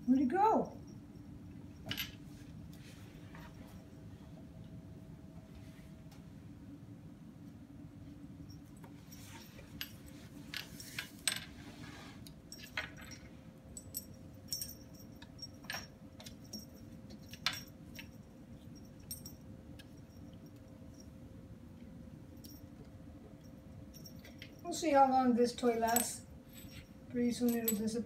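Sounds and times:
faint metallic jingle: 0:00.0 - 0:02.6, 0:08.4 - 0:11.5, 0:12.4 - 0:21.4, 0:22.2 - 0:28.0
toy clattering on tile floor: 0:01.8 - 0:02.2, 0:09.2 - 0:11.6, 0:12.5 - 0:18.2.

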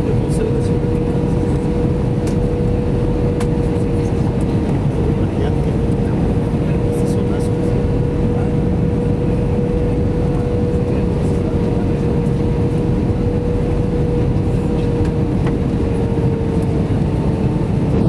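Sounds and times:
airplane cabin engine and airflow noise: 0:00.0 - 0:18.0.

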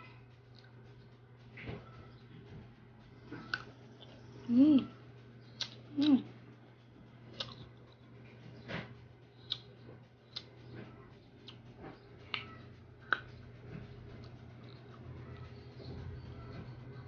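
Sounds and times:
person chewing crunchy fruit: 0:03.2 - 0:04.5, 0:05.5 - 0:06.3, 0:07.3 - 0:08.7, 0:09.3 - 0:10.6, 0:11.3 - 0:13.4.

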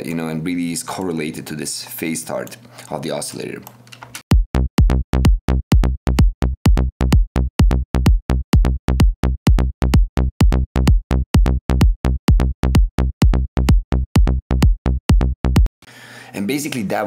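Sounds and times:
kick drum: 0:04.3 - 0:15.7
plucky synth bass notes: 0:04.3 - 0:15.7.

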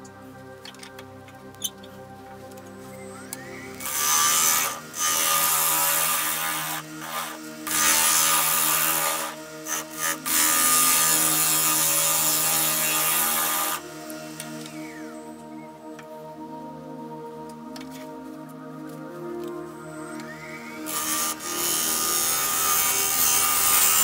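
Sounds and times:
gouge cutting wood on lathe: 0:03.8 - 0:15.0, 0:20.9 - 0:24.0.

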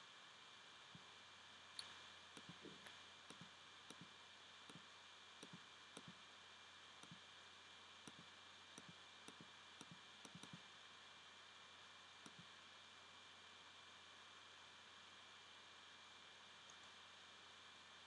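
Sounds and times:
computer mouse clicks: 0:01.8 - 0:06.2, 0:07.0 - 0:07.2, 0:08.0 - 0:10.7, 0:12.2 - 0:12.5.

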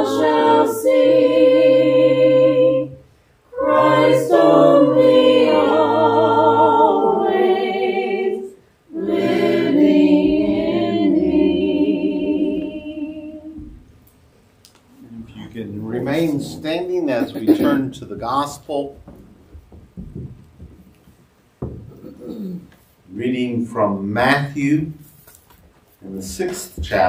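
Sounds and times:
voices singing a cappella: 0:00.0 - 0:14.0.

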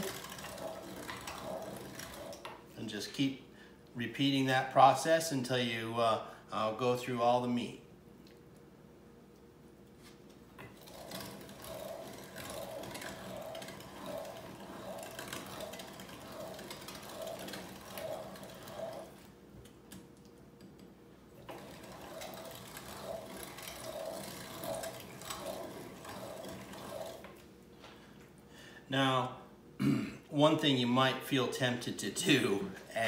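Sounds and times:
hand-cranked meat grinder grinding: 0:00.0 - 0:03.2, 0:10.6 - 0:19.4, 0:21.4 - 0:27.4.

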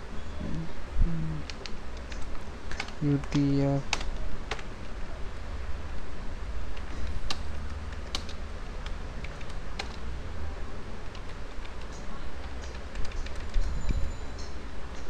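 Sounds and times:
low hum: 0:00.0 - 0:15.0
keyboard keystroke clicks: 0:01.4 - 0:04.7, 0:06.7 - 0:10.0, 0:11.1 - 0:13.7.

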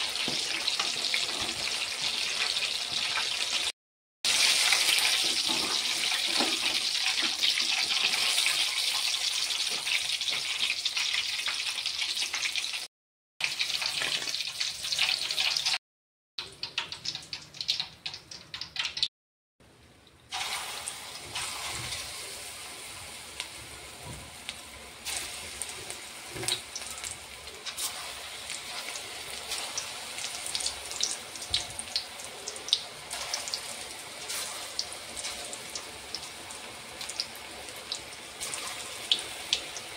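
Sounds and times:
fritters sizzling in hot oil: 0:00.0 - 0:15.8, 0:16.4 - 0:19.1, 0:20.2 - 0:39.9
oil crackling and popping: 0:04.3 - 0:15.8, 0:16.4 - 0:19.1, 0:24.4 - 0:39.9.

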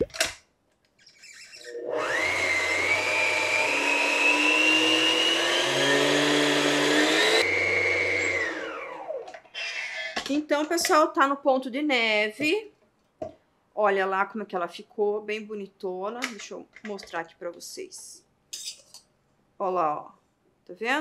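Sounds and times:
stand mixer whisking: 0:01.9 - 0:08.8.

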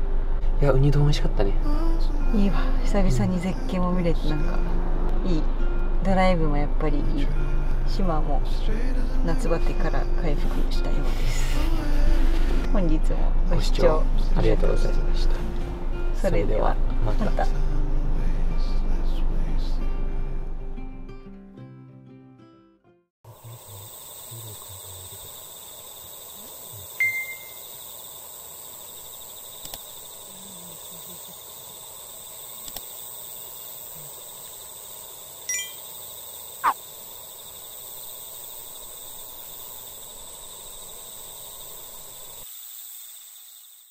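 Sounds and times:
chorus of insects: 0:23.3 - 0:43.9.

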